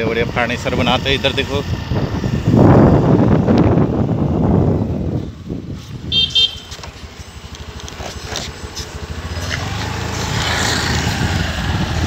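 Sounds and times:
motorbike engine rumble: 0.0s - 12.0s
wind rumble: 0.0s - 12.0s
horn toots: 6.1s - 6.8s.

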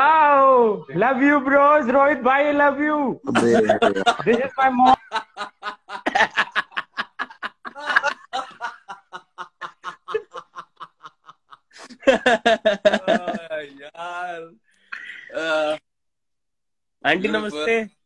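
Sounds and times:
men laughing hard: 3.3s - 13.6s.

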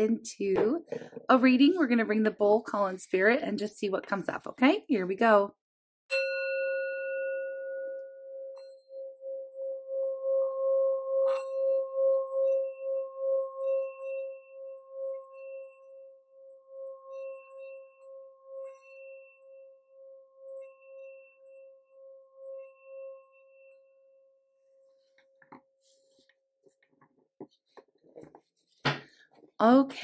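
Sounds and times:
singing bowl pulsing tone: 6.1s - 25.4s.

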